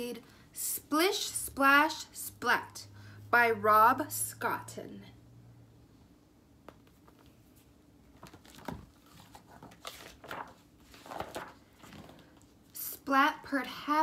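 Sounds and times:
paper rustling: 6.8s - 12.6s.

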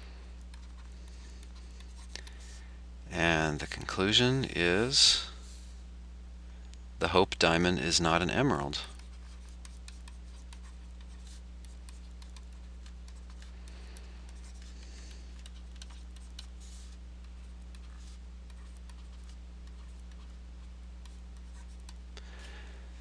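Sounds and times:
low electrical hum: 0.0s - 23.0s
pen scratching while writing: 8.9s - 13.5s, 14.3s - 17.0s, 17.7s - 20.4s, 21.0s - 21.9s.

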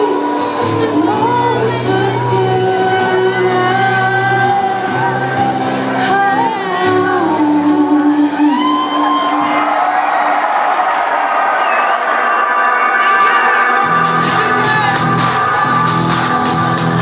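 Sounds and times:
woman singing long notes: 0.0s - 9.8s.

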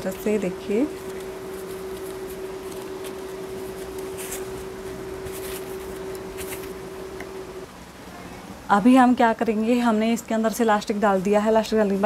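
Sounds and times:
steady hum: 0.0s - 12.0s
fabric rustling softly: 0.2s - 6.9s.

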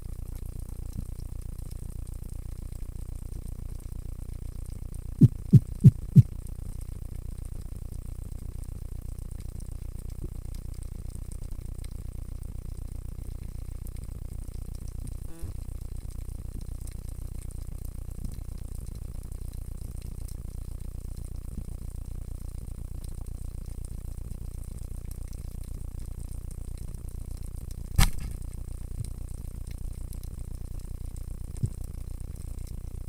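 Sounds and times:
underwater rumble and hiss: 0.0s - 33.0s
sharp click: 28.0s - 28.4s.

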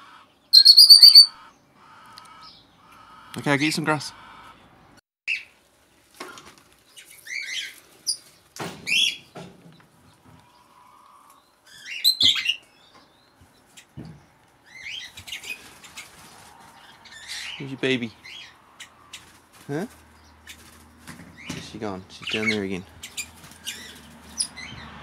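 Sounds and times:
parrots chirping and squawking: 0.0s - 4.7s, 7.0s - 8.2s, 10.5s - 12.6s, 14.6s - 19.4s, 20.2s - 25.0s.

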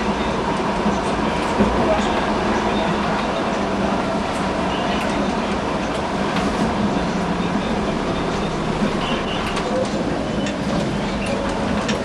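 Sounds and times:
tram wheels rumbling on rails: 0.0s - 12.0s.

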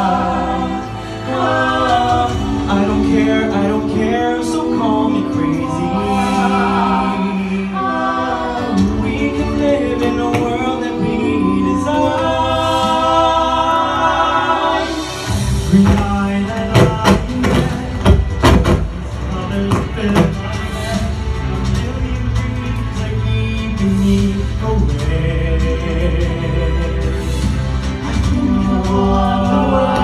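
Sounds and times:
sustained low bass line: 0.0s - 16.8s
a cappella ensemble singing harmony: 0.0s - 30.0s.

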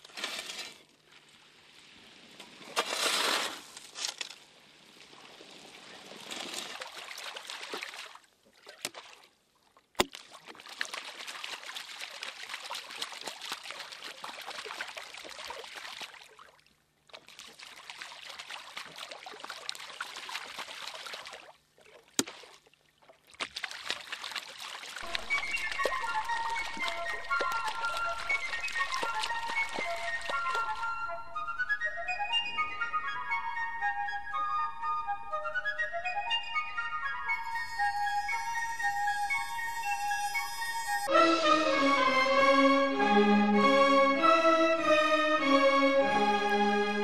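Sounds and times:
water splash: 1.8s - 4.0s, 4.8s - 9.3s, 10.0s - 31.0s
water trickling and pouring: 10.2s - 16.6s, 17.2s - 21.5s, 23.4s - 31.0s.

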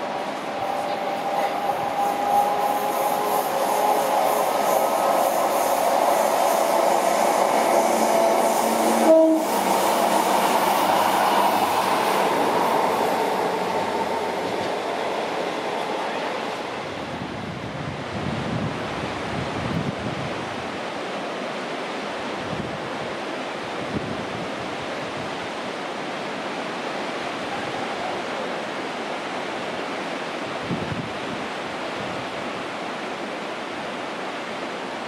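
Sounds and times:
wind buffeting microphone: 0.0s - 15.9s, 16.5s - 20.8s, 22.3s - 25.4s, 30.4s - 32.5s
sea surf washing on shore: 0.0s - 35.0s.

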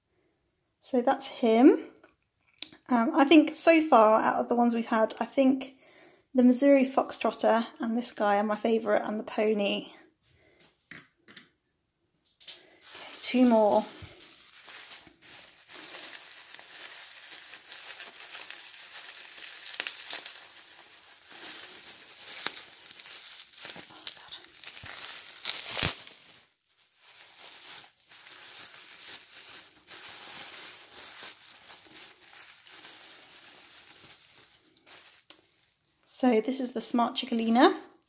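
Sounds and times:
plastic packaging crinkling: 12.5s - 36.1s.

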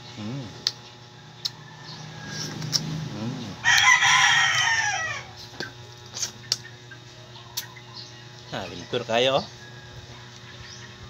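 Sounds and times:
rooster crowing: 1.2s - 5.4s, 9.4s - 10.4s.

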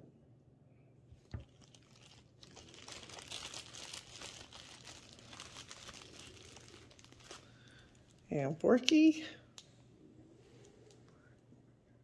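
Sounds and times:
plastic bag crinkling: 1.2s - 8.4s.

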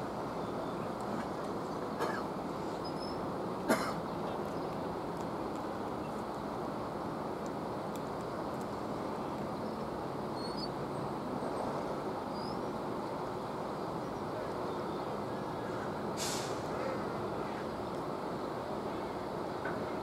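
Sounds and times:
low rumble of harbour machinery: 0.0s - 20.0s
air hiss: 16.0s - 17.0s.

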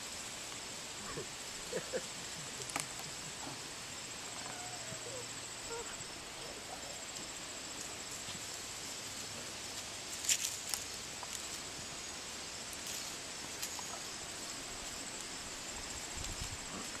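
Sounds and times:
steady outdoor hiss: 0.0s - 17.0s
light crackles and snaps: 2.6s - 3.2s, 9.7s - 11.7s
puppies rustling through plants: 5.6s - 17.0s.

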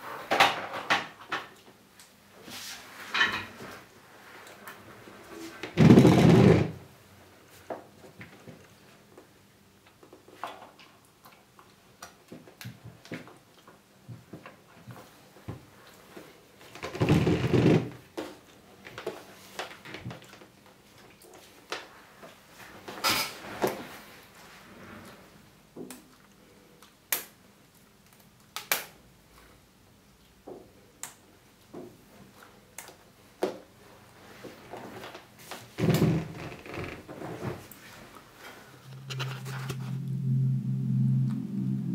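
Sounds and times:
plastic rubbing sound: 5.4s - 6.8s, 35.8s - 40.2s
device handling noise: 38.9s - 40.0s.

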